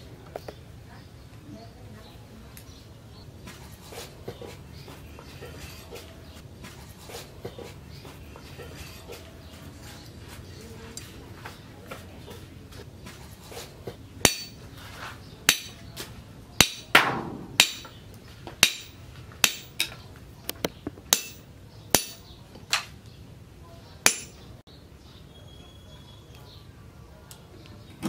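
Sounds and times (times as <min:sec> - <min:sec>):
machete chopping wire on steel: 0:14.2 - 0:14.7, 0:15.5 - 0:18.0, 0:18.6 - 0:20.0, 0:21.1 - 0:22.9, 0:24.1 - 0:24.4.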